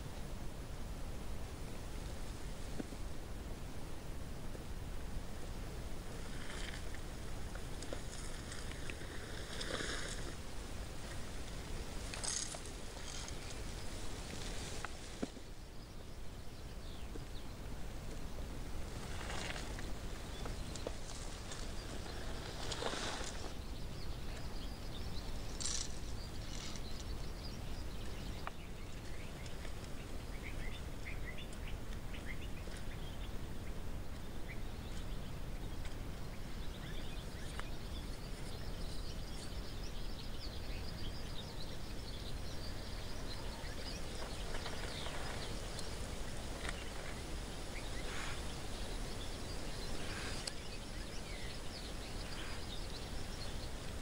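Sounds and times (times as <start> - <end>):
outdoor ambient noise: 0.0 - 54.0
soft rustles: 6.1 - 15.6, 18.1 - 23.6.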